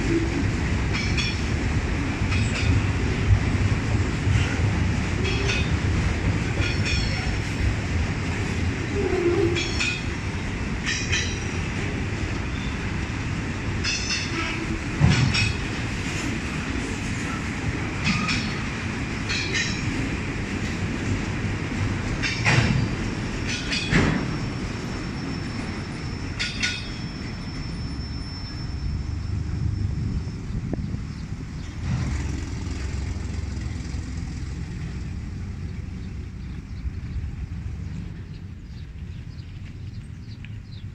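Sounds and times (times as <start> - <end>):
freight cars rumbling: 0.0 - 40.9
freight car clanks: 13.8 - 15.7, 22.2 - 24.4.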